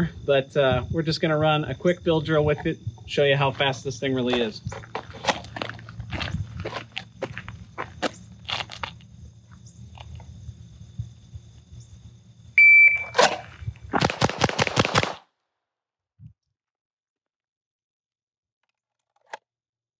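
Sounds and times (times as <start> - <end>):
shot timer beep: 12.6 - 13.2
rifle firing rapid shots: 14.0 - 15.3.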